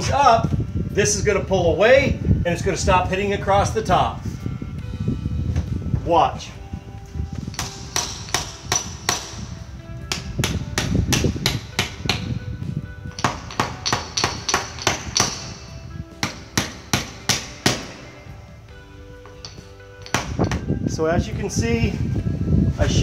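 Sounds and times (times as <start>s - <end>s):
hammer tapping wood shims: 7.5s - 9.4s, 13.1s - 18.1s, 19.3s - 20.6s.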